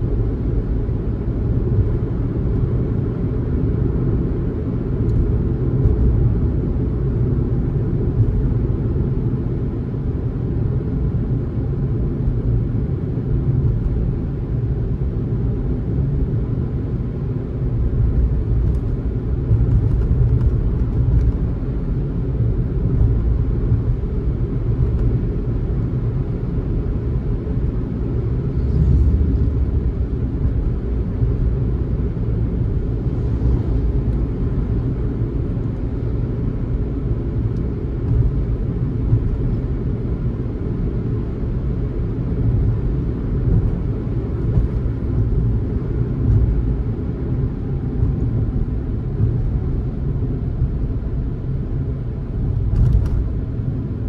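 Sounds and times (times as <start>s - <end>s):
car road and engine rumble: 0.0s - 54.0s.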